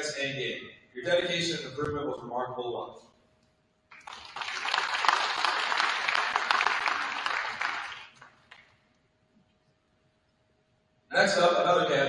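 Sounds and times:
audience applause: 3.9s - 8.7s.

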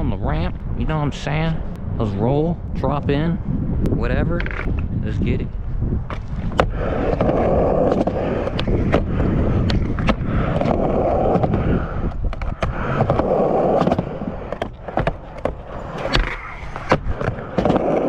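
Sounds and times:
skateboard wheels rolling on concrete: 0.0s - 18.0s
skateboard clacks: 6.1s - 18.0s.

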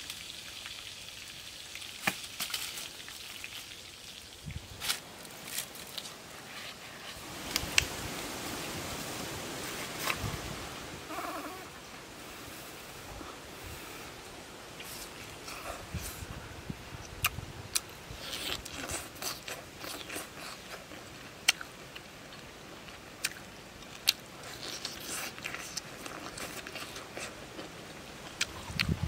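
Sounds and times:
person chewing food: 17.0s - 29.0s.

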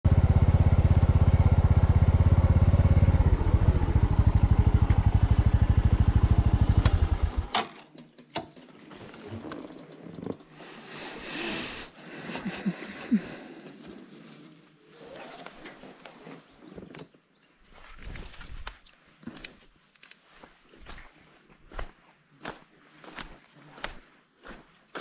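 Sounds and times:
motorcycle engine running: 0.0s - 7.5s.

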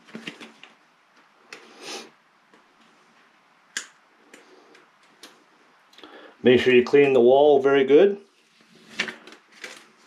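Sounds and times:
paper backing rustle: 0.0s - 0.8s, 8.3s - 10.0s.

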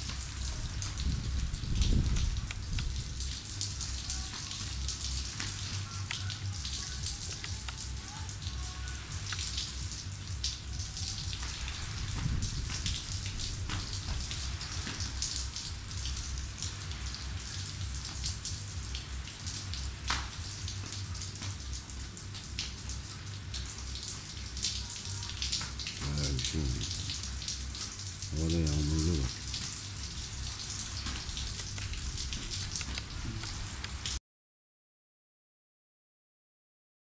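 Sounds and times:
rain drops ticking: 0.0s - 34.2s
steady rain hiss: 0.0s - 34.2s.

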